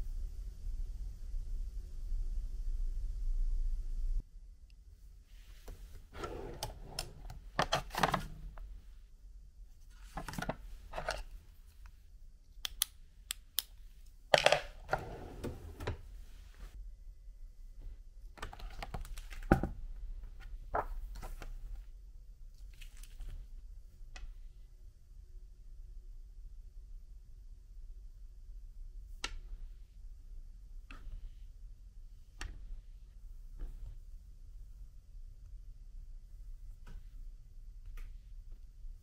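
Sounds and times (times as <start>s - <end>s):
drawer sliding open and shut: 5.7s - 8.7s, 14.3s - 16.7s.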